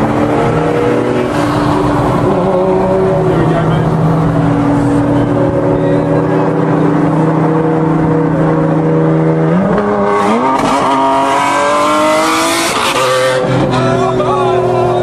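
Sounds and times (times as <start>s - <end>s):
sports car accelerating hard: 0.0s - 15.0s.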